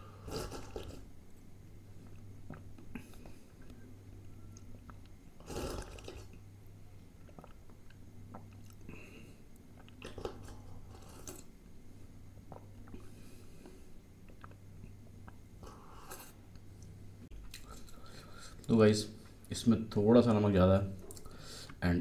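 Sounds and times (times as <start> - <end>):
person slurping: 0.1 - 1.1, 5.4 - 6.4, 8.3 - 11.5, 15.6 - 16.4
wet mouth clicks and chewing: 7.2 - 8.9, 14.2 - 15.4.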